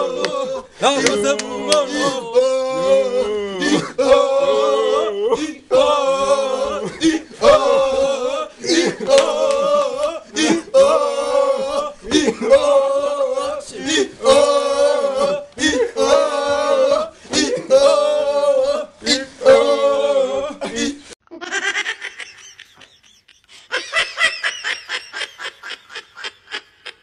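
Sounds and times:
young men chanting: 0:00.0 - 0:21.1
laughter: 0:12.0 - 0:12.6, 0:20.7 - 0:27.0.

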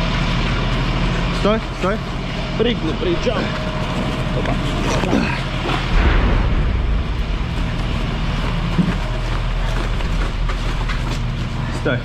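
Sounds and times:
heavy vehicle engine running: 0:00.0 - 0:12.0
low rumble: 0:03.4 - 0:11.7.

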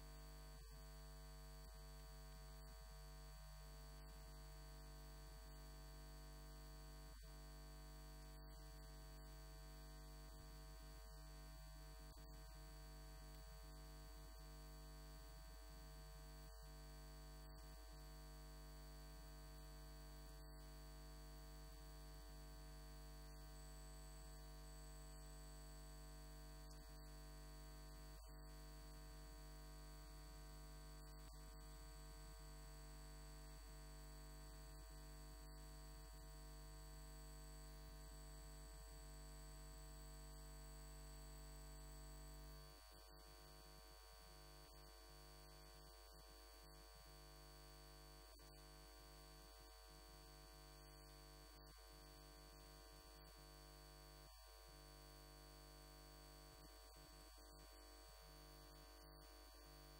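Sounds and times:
low electrical hum: 0:22.1 - 0:29.0.

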